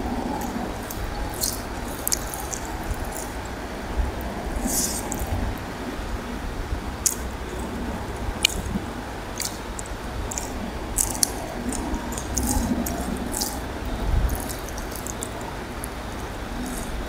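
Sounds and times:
fingers squishing rice and curry: 0.3 - 3.6, 4.3 - 5.3, 9.3 - 17.0
wet clicks and smacks: 0.4 - 3.6, 7.0 - 7.7, 8.4 - 17.0.

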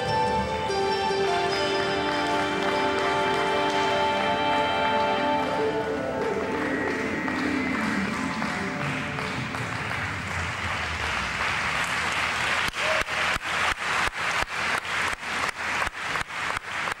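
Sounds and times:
music: 0.0 - 12.4
audience applause: 1.2 - 17.0.

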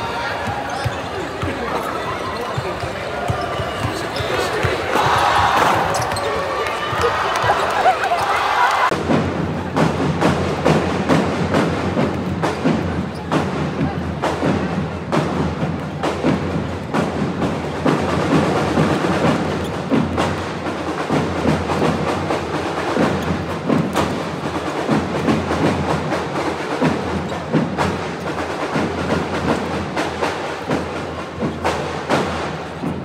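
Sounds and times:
basketballs bouncing on hardwood: 0.4 - 6.4.

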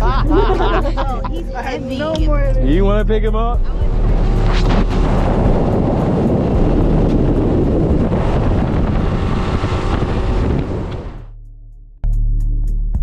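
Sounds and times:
boat engine drone: 0.0 - 11.3
wind buffeting microphone: 3.5 - 11.3
water rushing: 3.8 - 11.3.

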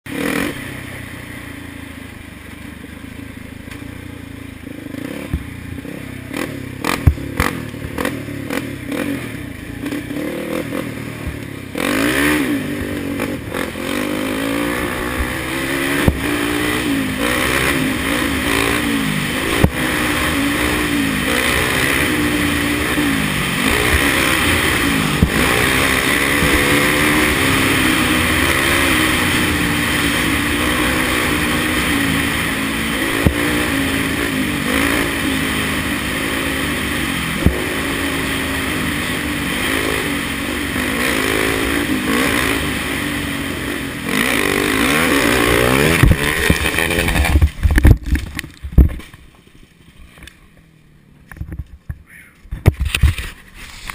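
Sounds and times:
atv engine running hard: 0.1 - 53.9
sharp knocks and clatter: 45.8 - 49.5.

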